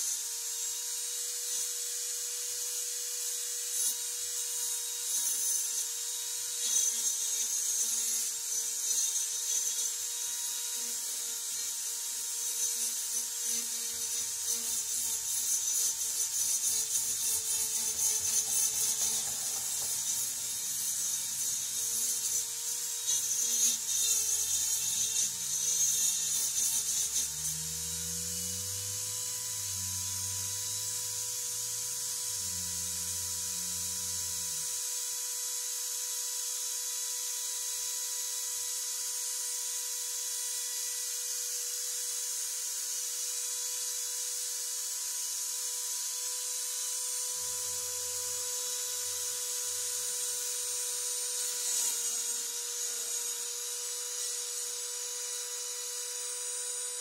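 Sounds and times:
tool scraping metal: 0:02.6 - 0:34.9, 0:47.2 - 0:57.0.

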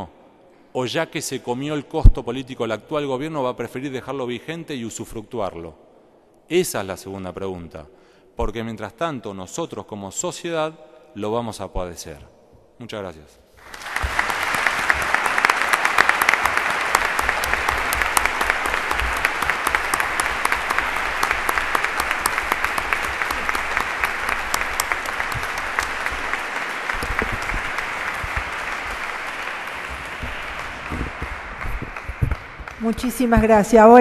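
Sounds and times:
audience applauding: 0:13.6 - 0:33.6.

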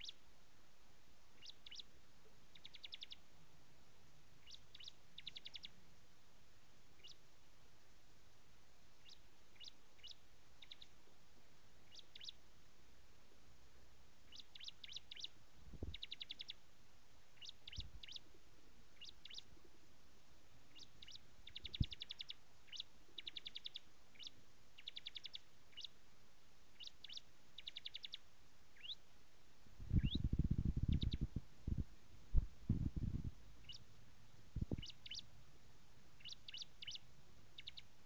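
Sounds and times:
bird chirping and trilling: 0:00.0 - 0:00.2, 0:01.4 - 0:01.9, 0:02.5 - 0:03.2, 0:04.4 - 0:05.8, 0:07.0 - 0:07.2, 0:09.0 - 0:11.0, 0:11.9 - 0:12.4, 0:14.3 - 0:16.6, 0:17.4 - 0:18.2, 0:19.0 - 0:19.5, 0:20.7 - 0:26.0, 0:26.8 - 0:28.2, 0:28.8 - 0:29.0, 0:29.9 - 0:31.4, 0:32.9 - 0:33.9, 0:34.6 - 0:35.3, 0:36.2 - 0:37.9
low thumps: 0:29.8 - 0:33.4, 0:34.6 - 0:34.9.

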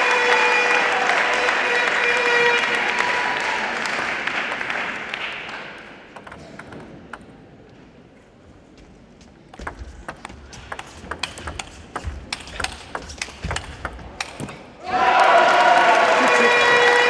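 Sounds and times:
applause: 0:00.0 - 0:05.9, 0:15.0 - 0:17.0
table tennis ball clicking: 0:06.1 - 0:07.4, 0:09.5 - 0:14.6.

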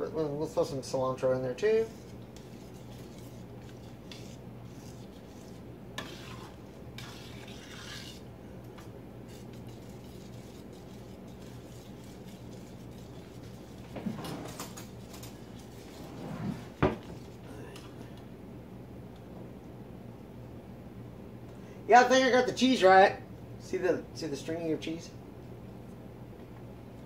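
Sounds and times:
steady low hum: 0:00.0 - 0:27.0
utensil scraping pot: 0:01.6 - 0:17.4.

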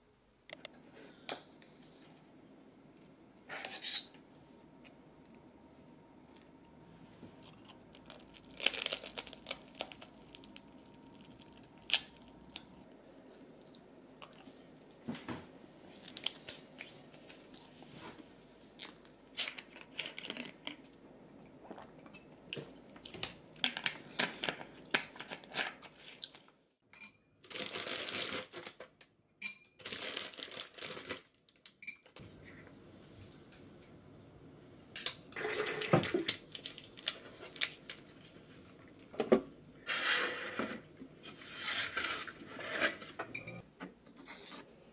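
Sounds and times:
hard bread crunching while chewed: 0:07.4 - 0:12.7.

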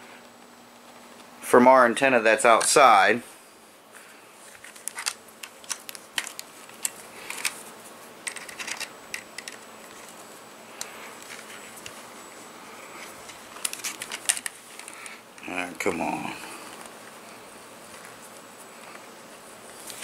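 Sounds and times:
faint steady hiss: 0:00.0 - 0:20.0
cable plug clicks and rustles: 0:04.6 - 0:07.6, 0:08.2 - 0:10.1, 0:13.2 - 0:15.5.

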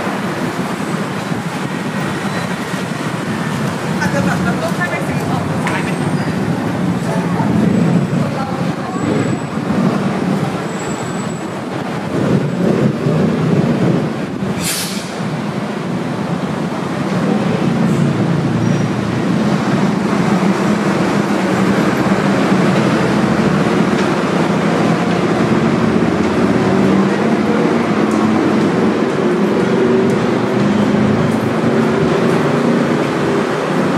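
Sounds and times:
city traffic rumble: 0:00.0 - 0:33.9
short hiss: 0:14.6 - 0:15.2.

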